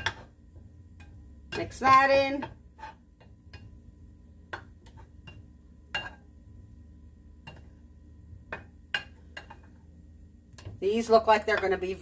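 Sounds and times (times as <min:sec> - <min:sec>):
low steady hum: 0:00.0 - 0:12.0
spoon scraping ceramic dish: 0:02.7 - 0:03.7.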